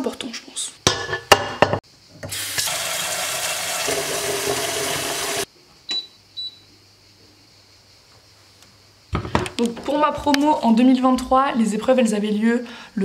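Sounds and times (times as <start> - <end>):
tap water running into sink: 2.3 - 5.5.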